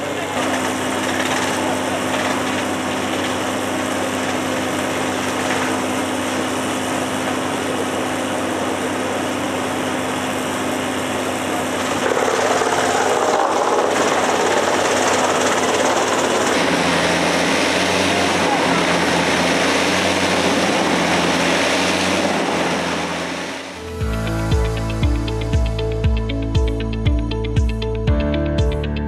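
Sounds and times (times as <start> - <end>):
logs fed into chipper: 0.0 - 8.4, 11.6 - 22.9
wood chipper engine drone: 0.0 - 29.0.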